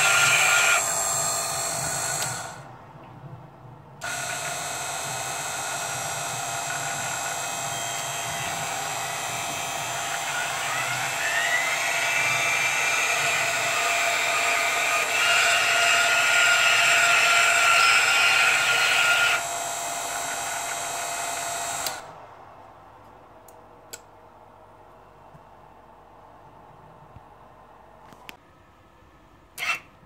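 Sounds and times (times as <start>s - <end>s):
electric motor whine: 0.0s - 2.7s, 4.0s - 22.2s.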